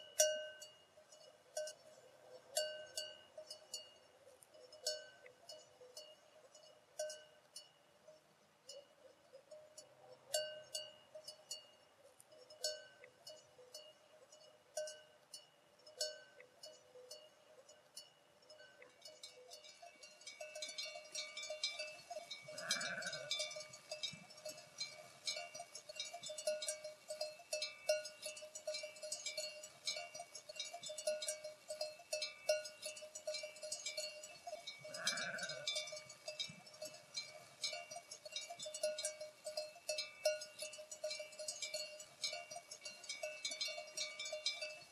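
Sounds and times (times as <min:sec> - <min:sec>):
sheep bells clinking: 0:00.0 - 0:44.9
sheep bleating: 0:22.6 - 0:23.4, 0:34.9 - 0:35.8.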